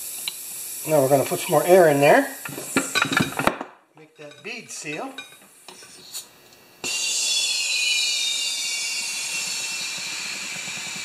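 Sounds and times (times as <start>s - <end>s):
compressed air hissing: 0.0s - 3.4s, 5.6s - 11.0s
faint falling whistle: 6.8s - 10.3s.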